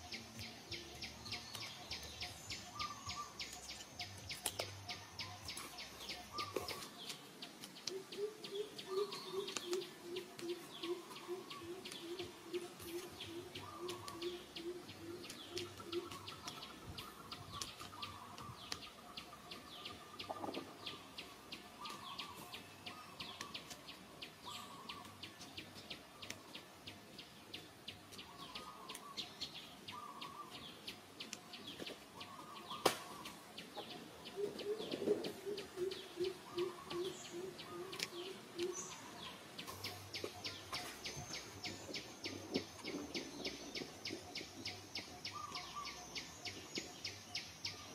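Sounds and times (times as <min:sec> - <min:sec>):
forest birds calling: 0:00.0 - 0:47.9
low repeated hoots: 0:07.9 - 0:17.3, 0:34.0 - 0:40.2.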